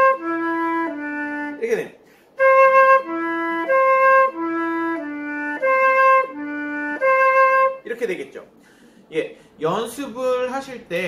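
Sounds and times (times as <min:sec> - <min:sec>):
flute playing low notes: 0:00.0 - 0:01.8, 0:02.4 - 0:07.9.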